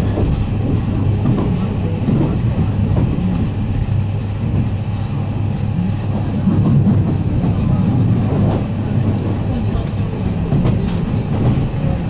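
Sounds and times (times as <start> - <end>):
low rumble of wheels on rail: 0.0 - 12.0.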